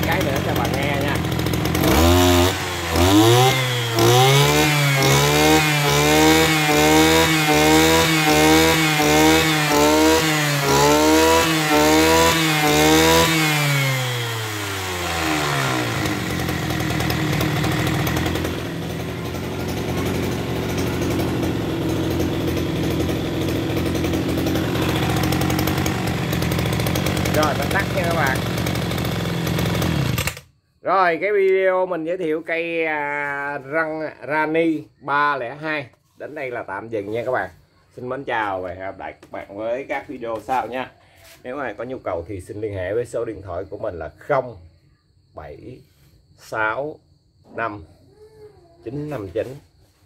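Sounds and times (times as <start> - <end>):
brush cutter engine revving: 0.0 - 30.5.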